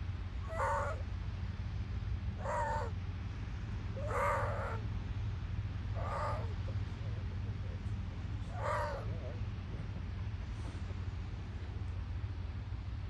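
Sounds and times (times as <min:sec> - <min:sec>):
steady low rumble: 0:00.0 - 0:13.0
seal pup crying: 0:00.4 - 0:01.0, 0:02.4 - 0:03.0, 0:04.0 - 0:04.8, 0:06.0 - 0:06.6, 0:08.5 - 0:09.4.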